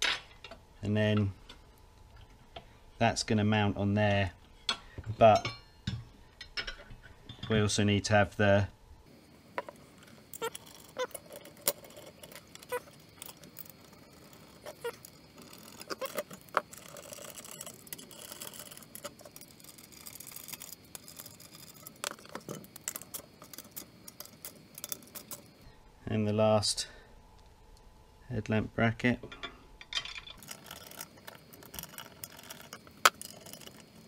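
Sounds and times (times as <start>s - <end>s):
metal brackets and bolts clinking: 4.6s - 7.8s, 29.2s - 31.0s.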